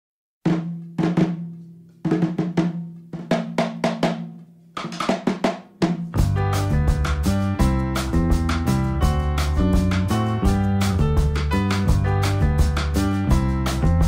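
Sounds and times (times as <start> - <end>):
band music with bass line: 6.1 - 14.0.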